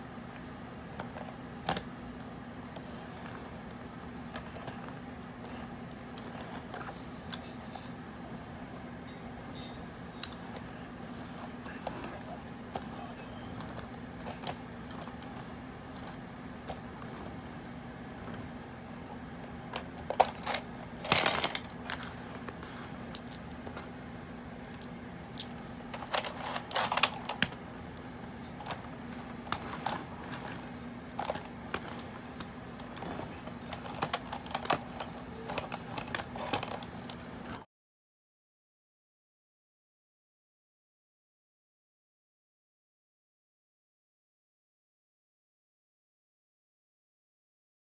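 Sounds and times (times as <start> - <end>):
steady hum: 0.0 - 37.6
plastic clatter: 11.4 - 17.4, 19.4 - 23.9, 24.7 - 37.3
plastic toy clicks and knocks: 19.7 - 22.0, 24.8 - 27.6.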